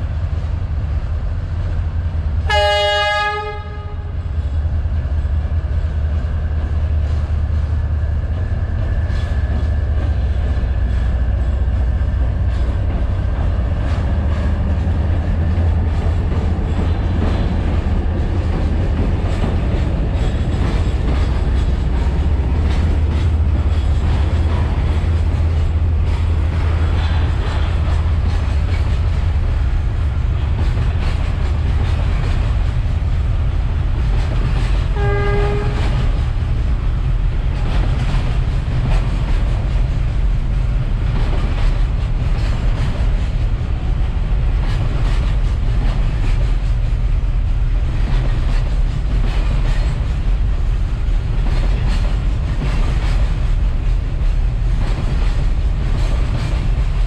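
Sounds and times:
freight train rumbling: 0.0s - 57.0s
train horn blast: 2.4s - 4.2s, 34.9s - 36.2s
wheels clacking over rail joints: 6.6s - 57.0s.

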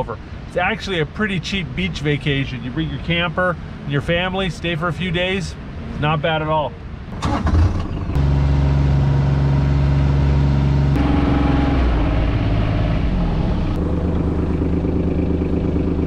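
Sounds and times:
utility vehicle engine running: 7.1s - 16.0s.

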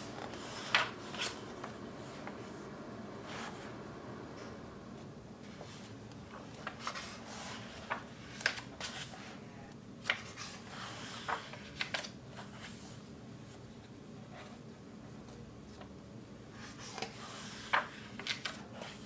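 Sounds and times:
paper pages rustling: 0.0s - 2.6s, 5.0s - 9.4s, 10.0s - 13.6s, 16.6s - 19.0s.

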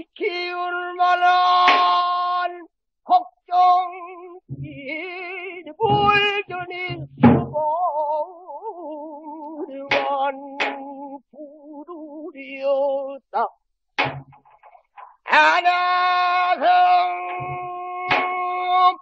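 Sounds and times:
person singing with vibrato: 0.0s - 13.6s, 15.0s - 19.0s
barrel drum strikes: 5.9s - 7.6s, 14.0s - 14.8s, 17.4s - 18.4s.

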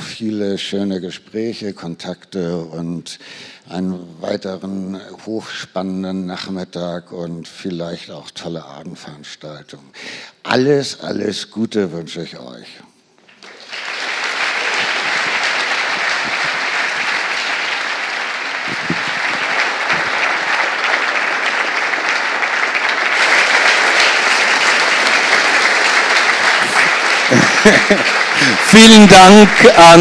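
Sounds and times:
large audience applauding: 13.3s - 30.0s.

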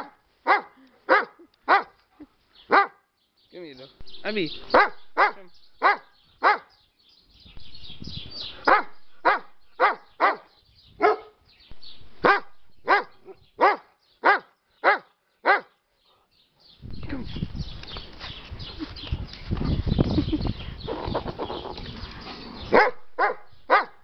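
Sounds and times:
dog barking: 0.0s - 2.0s, 2.7s - 3.0s, 4.7s - 6.7s, 8.6s - 11.4s, 12.2s - 15.7s, 22.7s - 24.0s.

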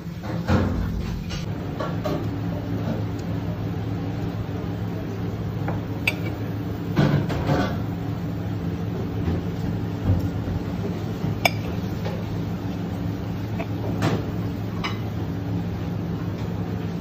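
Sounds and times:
low mechanical hum: 0.0s - 17.0s
cutlery clinking on plate: 6.1s - 6.4s.

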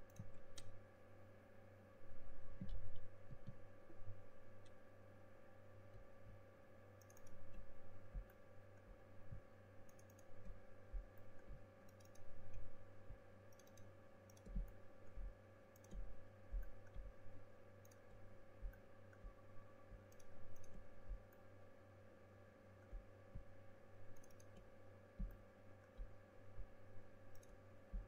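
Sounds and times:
computer mouse clicking: 0.0s - 0.8s, 7.0s - 12.8s, 13.4s - 21.5s, 24.1s - 26.2s, 27.3s - 28.0s
steady background hum: 0.0s - 28.0s.

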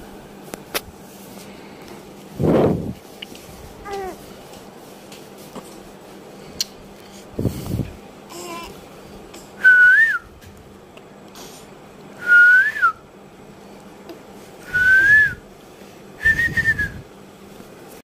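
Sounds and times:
person whistling: 9.6s - 10.3s, 12.2s - 13.0s, 14.7s - 15.4s, 16.2s - 17.0s.

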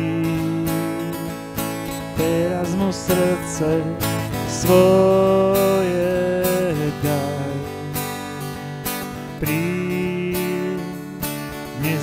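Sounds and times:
acoustic guitar strumming chords: 0.0s - 12.0s.

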